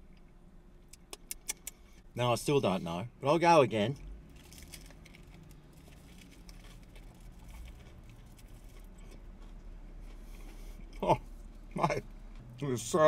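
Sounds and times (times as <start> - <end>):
person chewing: 4.4 - 11.0.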